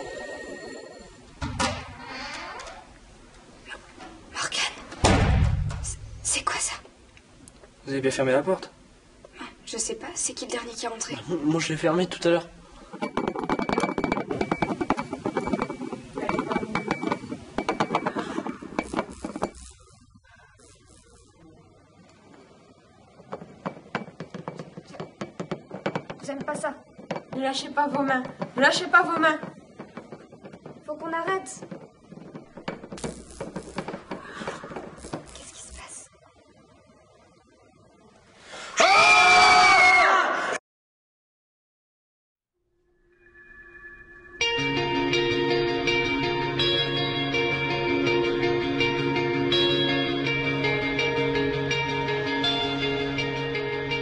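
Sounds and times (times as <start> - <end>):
clinking and rattling: 12.9 - 19.9, 28.2 - 35.8
woman screaming: 38.8 - 40.6
faint high squeal: 42.9 - 44.5.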